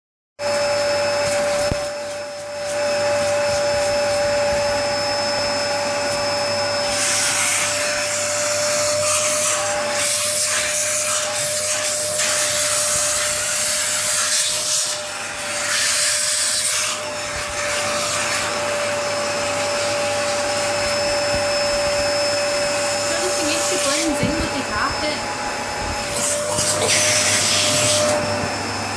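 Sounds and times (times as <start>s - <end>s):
vacuum cleaner running: 0.4s - 28.9s
nozzle sucking air unevenly: 1.0s - 13.8s, 16.2s - 28.9s.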